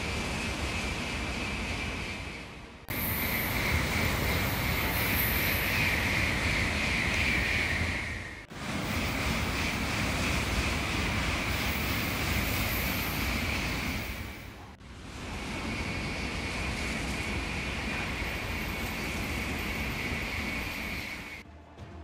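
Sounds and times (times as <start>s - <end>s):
high-speed train rushing past: 0.0s - 22.0s.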